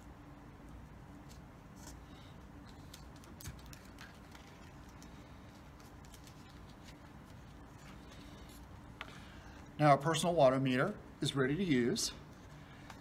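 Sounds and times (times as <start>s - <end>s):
paper card rustling: 1.2s - 9.3s.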